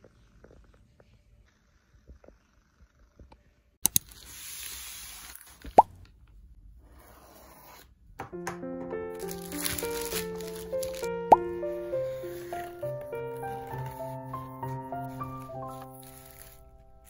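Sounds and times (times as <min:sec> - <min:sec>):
plastic bag rustling: 0:09.2 - 0:17.0.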